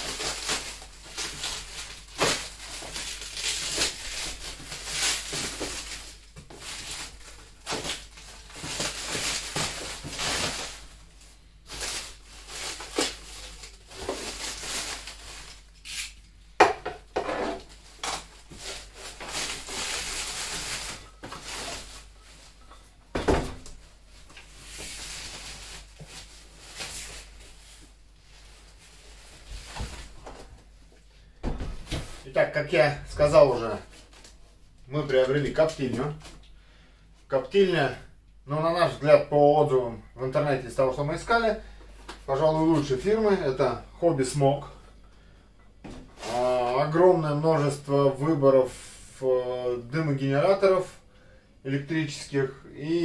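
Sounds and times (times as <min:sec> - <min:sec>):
plastic film tearing and crumpling: 0:00.0 - 0:10.9, 0:11.7 - 0:16.2, 0:17.6 - 0:22.5, 0:24.6 - 0:27.6.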